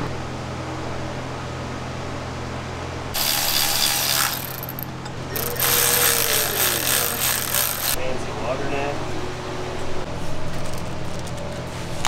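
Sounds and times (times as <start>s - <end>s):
electric ratchet running: 3.2s - 8.0s.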